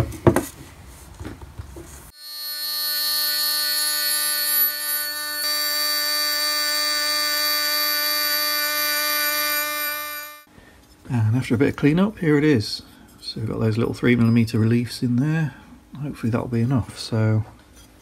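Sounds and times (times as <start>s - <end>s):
milling machine whine: 2.1s - 10.5s.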